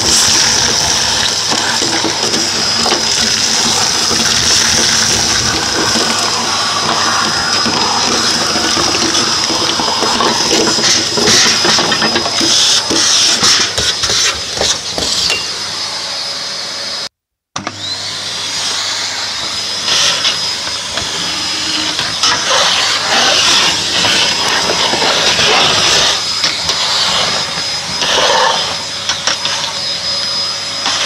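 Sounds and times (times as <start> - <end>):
debris rattling through hose: 0.0 - 14.3
vacuum cleaner whining: 0.0 - 31.0.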